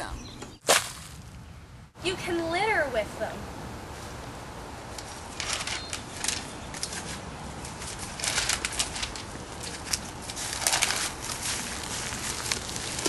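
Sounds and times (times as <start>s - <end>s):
paper rustling and flapping: 5.0s - 13.0s.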